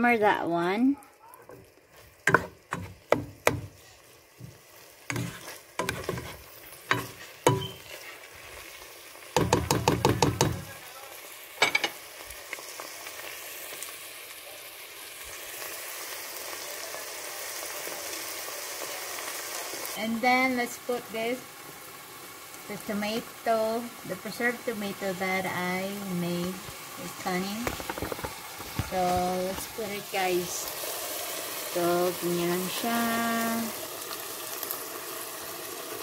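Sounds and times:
meat sizzling in a pot: 0.0 - 36.0
spoon scraping and knocking pan: 1.5 - 8.2, 9.4 - 10.7, 11.6 - 12.0, 27.6 - 29.7.

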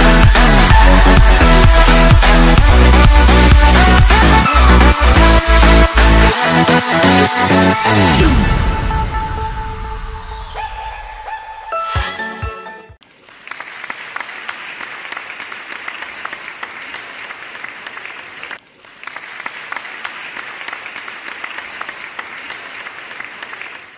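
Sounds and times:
music: 0.0 - 13.0
crowd applauding: 13.0 - 23.9.

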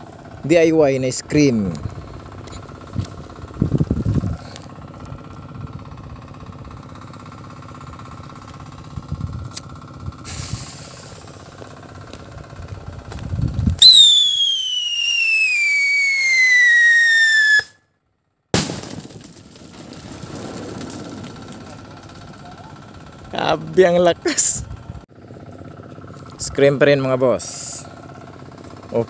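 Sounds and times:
low engine hum: 0.0 - 16.8, 20.0 - 29.0
firecracker hiss: 10.2 - 11.6, 13.8 - 17.7
falling piercing whistle: 13.8 - 17.8
loud firecracker bang: 18.5 - 19.3.

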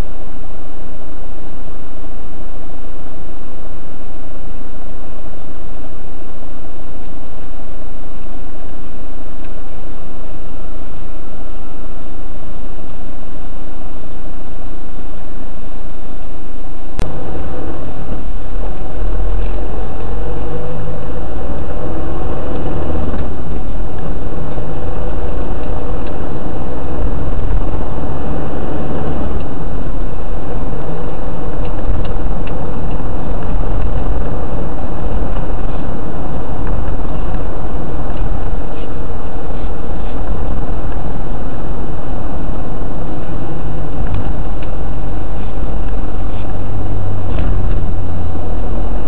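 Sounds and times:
car engine and road noise: 0.0 - 49.0.

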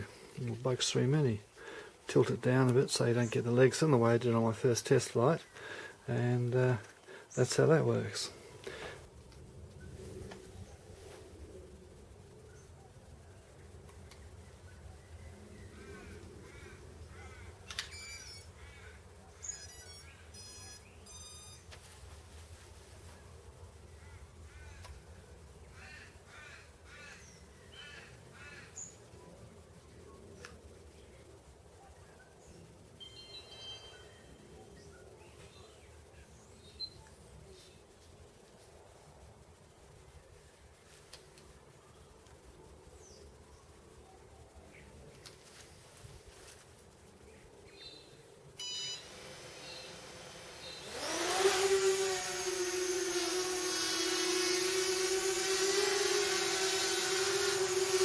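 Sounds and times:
drone motors whining: 19.4 - 21.7, 48.6 - 58.0
short electronic beep: 19.6 - 21.7, 33.0 - 34.4, 48.6 - 49.0.

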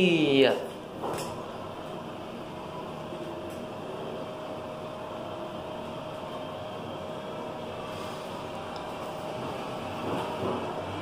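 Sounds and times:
elevator whir with hum: 0.0 - 11.0.

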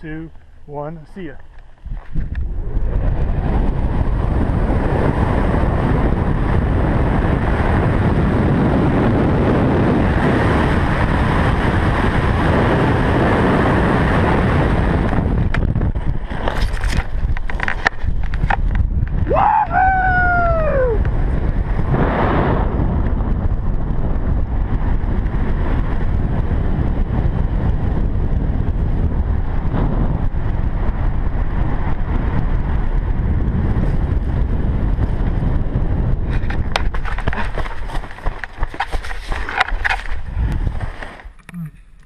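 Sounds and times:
wind buffeting microphone: 0.0 - 42.0
person whooping: 19.2 - 21.0
rustling crackles: 36.3 - 41.4.

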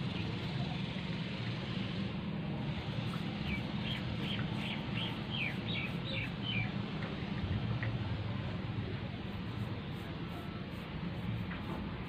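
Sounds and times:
small bird chirping: 3.4 - 6.7.

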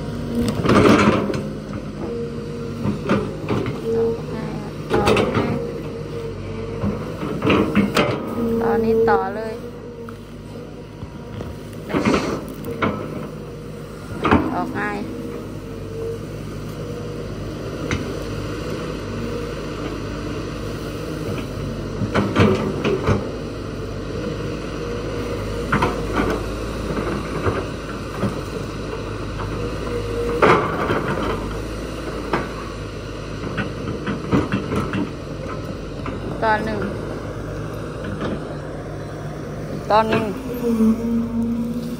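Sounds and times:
hydraulic pump whine: 0.0 - 18.1, 34.8 - 41.9
excavator diesel engine running: 0.0 - 41.9.

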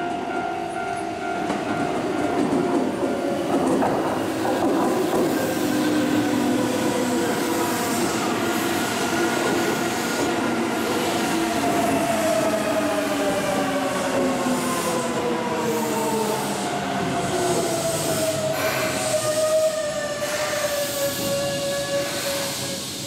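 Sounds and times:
electric train whining tones: 0.0 - 23.0
train wheels rumbling on rail: 0.0 - 23.0.

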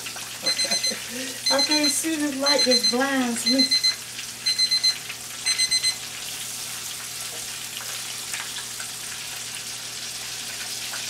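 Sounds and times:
fish deep-frying in oil: 0.0 - 11.0
timer beeping: 0.4 - 6.0.

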